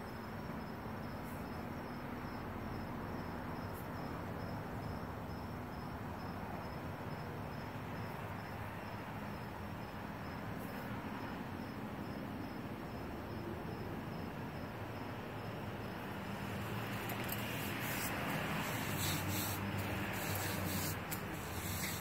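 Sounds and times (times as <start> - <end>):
insect chirping: 0.0 - 22.0.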